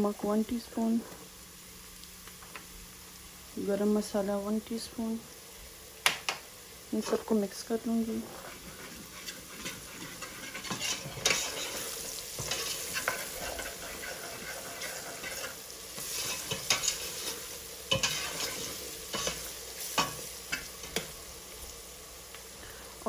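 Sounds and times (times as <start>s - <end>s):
onions sizzling in oil: 0.0s - 23.0s
spatula scraping and knocking pot: 8.4s - 21.1s.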